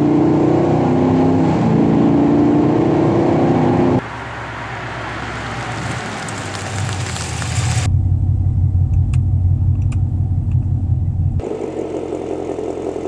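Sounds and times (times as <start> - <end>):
car engine droning inside cabin: 3.8 - 13.0
rough engine rumble: 4.0 - 13.0.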